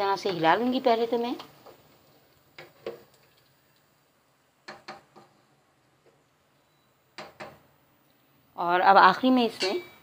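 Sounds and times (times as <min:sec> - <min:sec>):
spoon knocking against pot: 0:04.6 - 0:05.4, 0:07.2 - 0:07.6.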